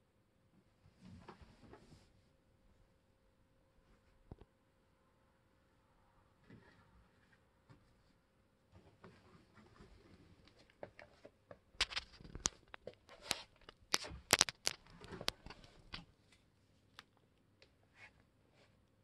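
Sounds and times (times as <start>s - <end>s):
crinkling handling noise: 8.8s - 17.2s.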